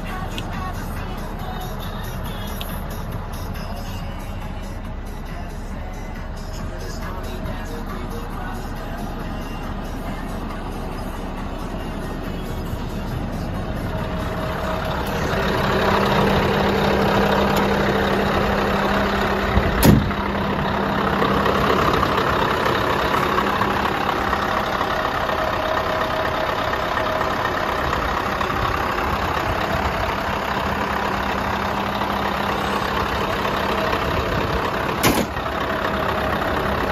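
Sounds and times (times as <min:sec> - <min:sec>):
diesel engine idling: 0:00.0 - 0:36.9.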